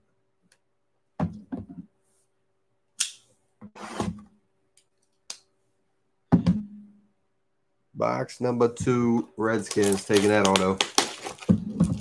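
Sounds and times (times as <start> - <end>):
cardboard scraping and rustling: 9.7 - 12.0.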